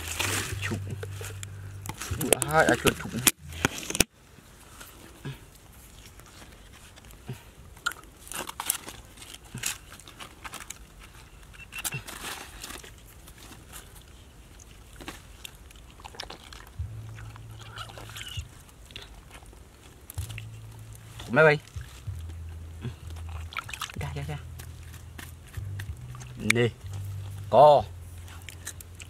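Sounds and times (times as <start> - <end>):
hands squelching in wet mud: 11.9 - 29.0.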